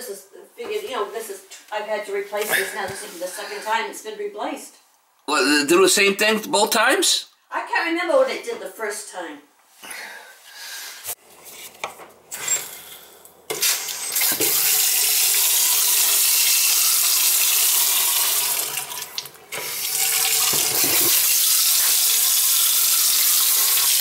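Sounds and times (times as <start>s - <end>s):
faucet water running into sink: 13.5s - 24.0s.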